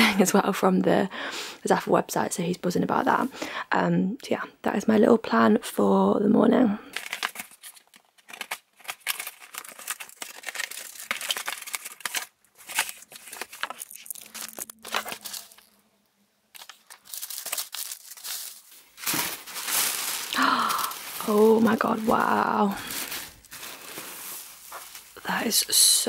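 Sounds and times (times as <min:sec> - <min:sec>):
cardboard and paper crinkling: 0:06.9 - 0:15.8, 0:16.5 - 0:25.9.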